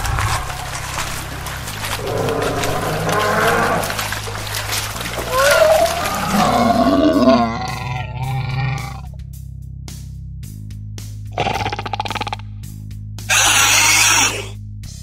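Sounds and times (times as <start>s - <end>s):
low steady music bed: 0.0s - 11.3s
cartoon dinosaur roars: 5.2s - 9.1s, 13.3s - 14.6s.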